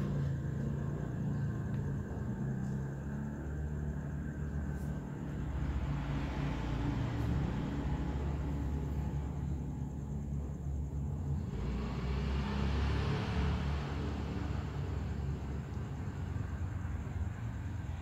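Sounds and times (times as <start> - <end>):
low background rumble: 0.0 - 12.5.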